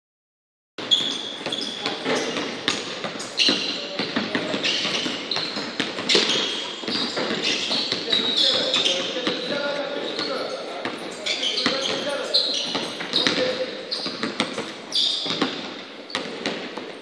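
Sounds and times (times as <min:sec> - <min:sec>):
basketballs bouncing on hardwood: 0:00.8 - 0:17.0
shoe squeaks: 0:00.8 - 0:17.0.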